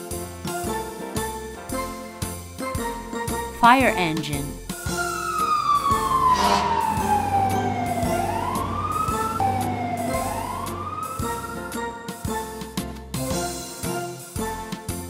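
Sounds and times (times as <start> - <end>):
fire engine siren wailing: 4.9 - 12.2.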